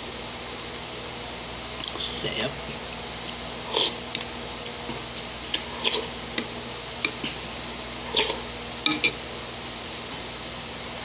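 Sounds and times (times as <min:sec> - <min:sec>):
steady low hum: 0:00.0 - 0:11.0
wet eating sounds: 0:03.2 - 0:08.5
metal spoon clinking on ceramic bowl: 0:08.8 - 0:09.2.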